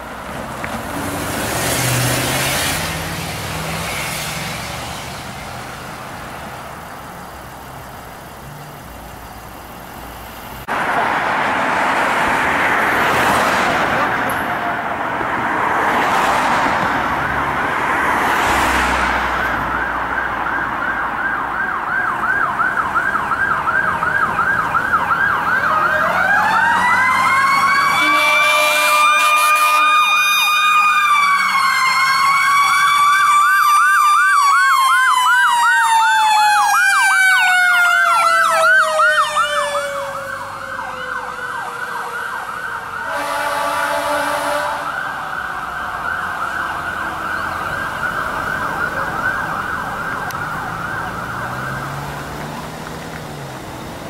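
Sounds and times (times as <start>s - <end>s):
electronic siren yelping: 19.4s - 52.2s.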